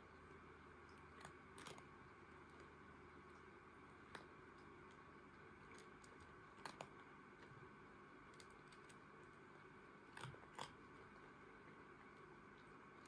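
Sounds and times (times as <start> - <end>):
quiet room hum: 0.0 - 13.0
cat crunching dry kibble: 0.9 - 13.0.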